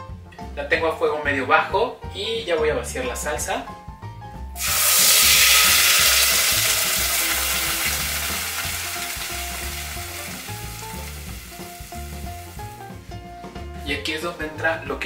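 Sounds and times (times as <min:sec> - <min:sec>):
salsa sizzling in hot oil: 0:04.6 - 0:13.6.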